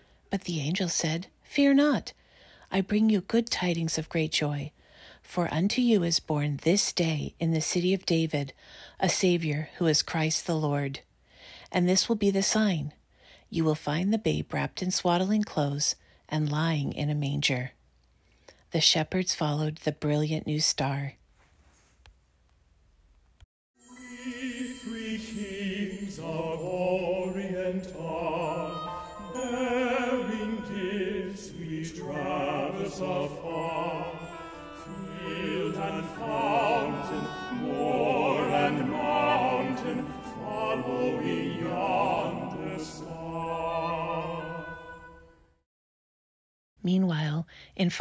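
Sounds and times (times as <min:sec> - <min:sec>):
operatic singing with vibrato: 0:23.8 - 0:45.3
musical accompaniment: 0:23.8 - 0:45.4.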